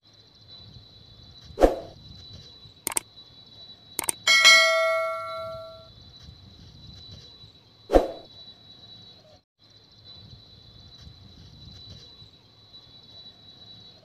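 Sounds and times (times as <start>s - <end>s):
sharp mouse clicks: 4.0s - 4.3s
faint steady high tone: 4.0s - 5.9s
notification bell ding: 4.0s - 5.9s.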